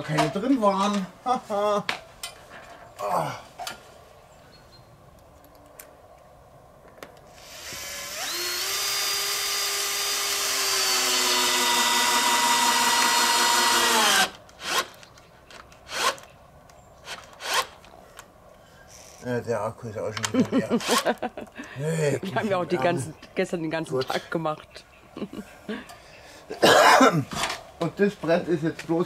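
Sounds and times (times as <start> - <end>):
drill driving screws into wood: 7.3 - 15.0, 15.9 - 16.2, 17.0 - 17.8.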